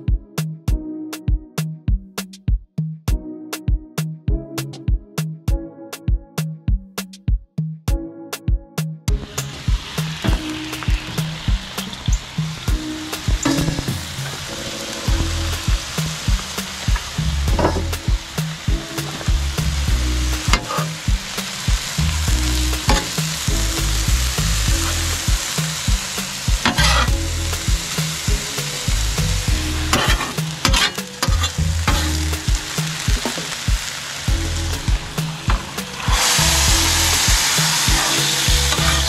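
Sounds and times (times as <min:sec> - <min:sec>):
vegetables sizzling on a griddle: 0:09.2 - 0:39.0
metal spatula scraping steel: 0:20.5 - 0:21.0, 0:26.6 - 0:27.2, 0:29.8 - 0:32.3, 0:38.0 - 0:39.0.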